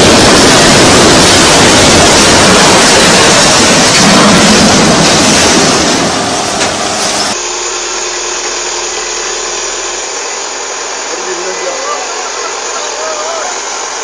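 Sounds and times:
loud rushing noise: 0.0s - 8.3s
excavator engine running: 0.0s - 14.0s.

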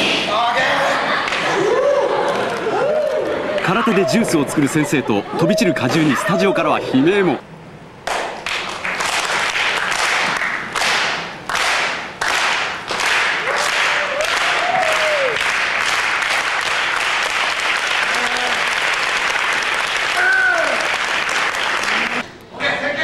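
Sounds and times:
audience applauding: 1.3s - 6.7s, 8.1s - 22.2s
person calling out: 3.7s - 7.4s.

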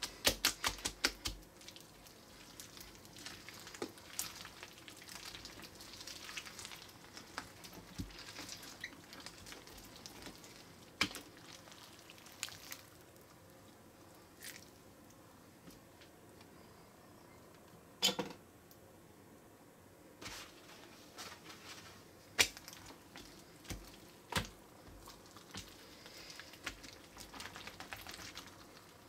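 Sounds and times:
wet slime squelching: 0.0s - 14.9s, 22.3s - 29.0s.

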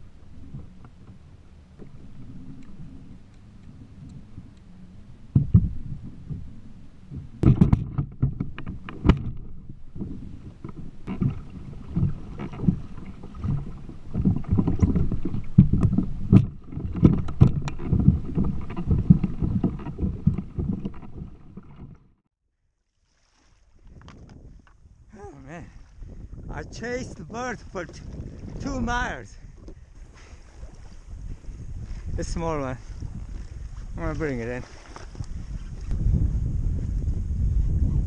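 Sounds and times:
wind on microphone: 0.0s - 22.2s, 23.4s - 38.0s
water slapping against kayak hull: 5.3s - 22.1s, 25.8s - 36.3s
sharp knocks: 7.2s - 9.4s.

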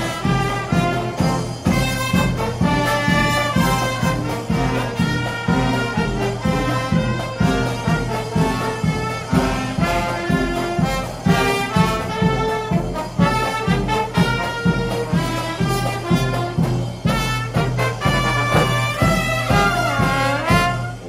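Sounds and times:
marching brass band playing: 0.0s - 21.0s.

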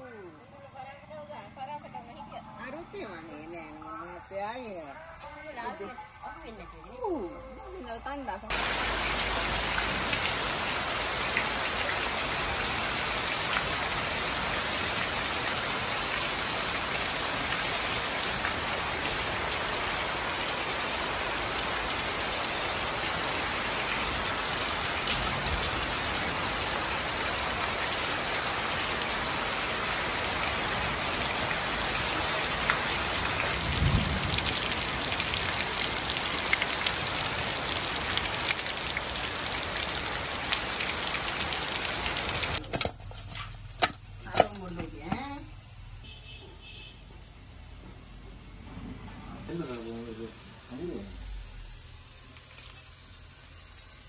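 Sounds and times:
heavy rain falling: 8.5s - 42.9s
water pouring off roof edge: 8.5s - 44.6s
drops splashing into puddles: 8.5s - 44.8s.

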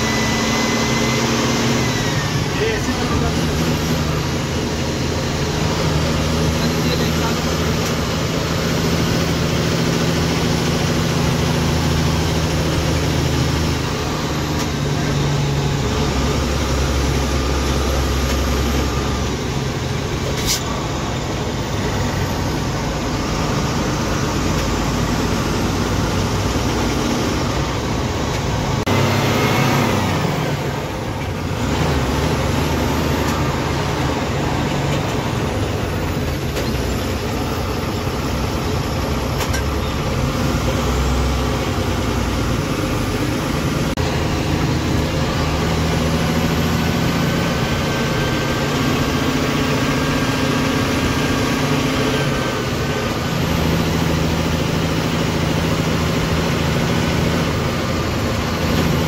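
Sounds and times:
bus engine droning: 0.0s - 59.0s.

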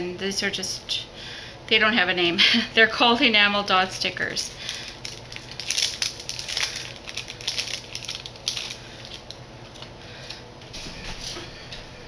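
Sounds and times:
plastic packaging crinkling: 4.5s - 10.4s.

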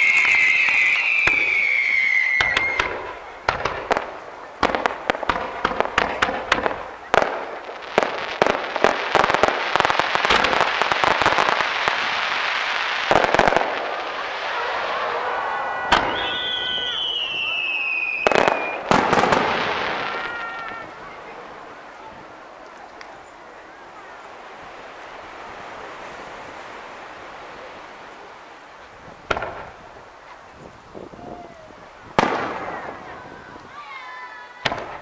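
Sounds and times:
falling firework whistle: 0.0s - 3.8s, 10.4s - 21.1s
firework bangs and pops: 0.0s - 23.3s, 28.1s - 30.0s, 32.0s - 33.7s, 34.6s - 35.0s
dense firework crackling: 0.0s - 35.0s.

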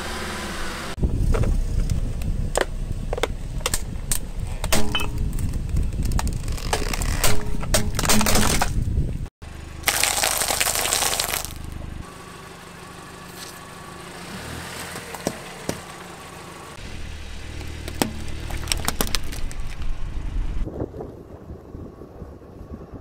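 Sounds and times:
lemons popping under a tyre: 1.3s - 8.8s, 9.8s - 11.8s, 17.5s - 20.0s
loud dense crunch: 4.8s - 9.0s, 9.8s - 11.8s, 17.5s - 20.1s
tyre crushing plastic: 9.8s - 11.8s, 17.9s - 19.8s.

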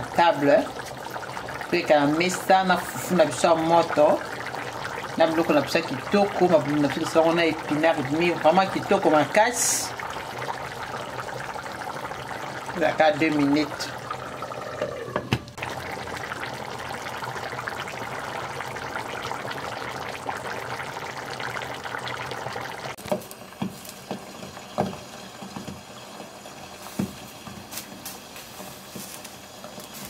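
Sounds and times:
stew bubbling and simmering: 0.0s - 30.0s
thick stew popping: 14.0s - 30.0s.

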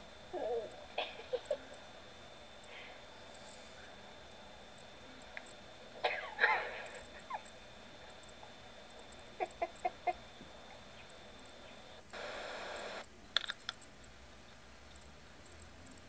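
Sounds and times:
faint background hiss: 0.0s - 16.0s
animal calls: 9.2s - 11.9s.

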